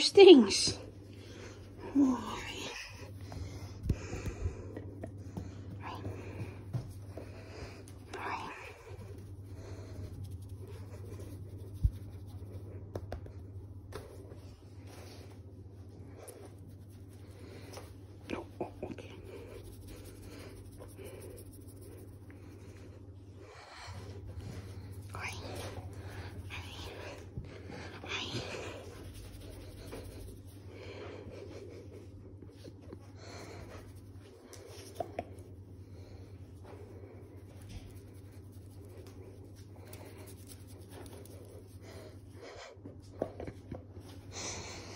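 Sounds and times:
hand rubbing dog fur: 6.5 - 15.3, 16.2 - 22.8, 24.4 - 27.2, 28.0 - 30.7, 33.4 - 42.2.

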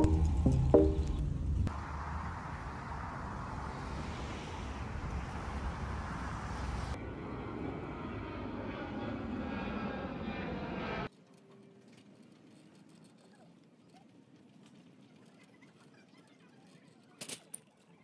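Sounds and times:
jet airliner passing overhead: 0.0 - 11.1
outdoor rushing noise: 0.0 - 11.1.

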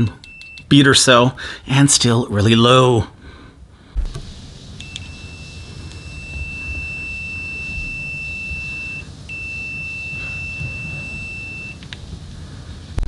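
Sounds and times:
high-pitched continuity beeper tone: 4.8 - 11.8.

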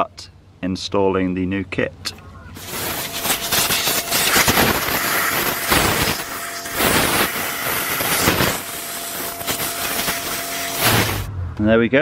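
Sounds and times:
compressed air blow gun hissing: 2.6 - 11.3.

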